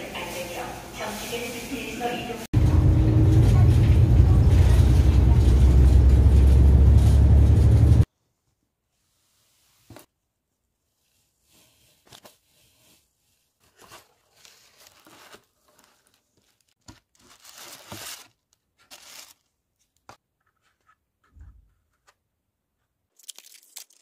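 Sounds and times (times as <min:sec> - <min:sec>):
paper rustling and crinkling: 0:11.6 - 0:21.0.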